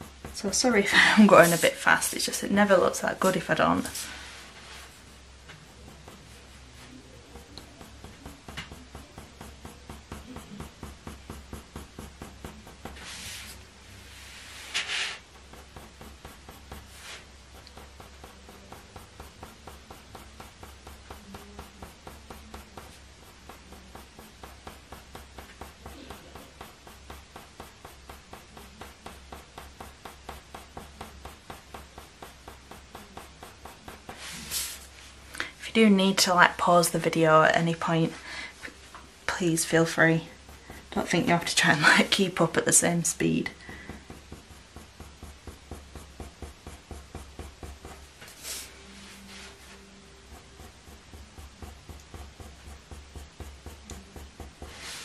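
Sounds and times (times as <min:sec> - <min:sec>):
pencil scratching on paper: 0:00.0 - 0:35.0, 0:38.8 - 0:55.0.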